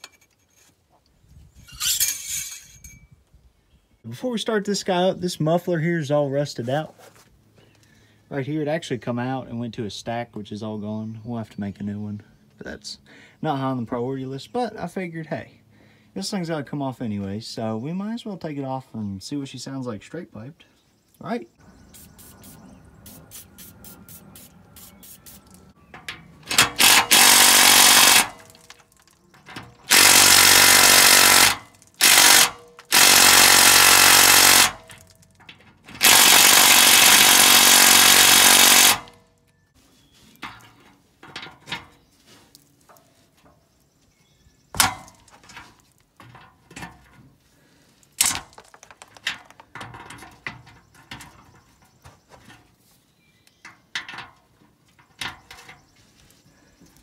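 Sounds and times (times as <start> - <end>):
impact wrench hammering: 26.5 - 28.6, 29.8 - 35.0, 36.0 - 39.2.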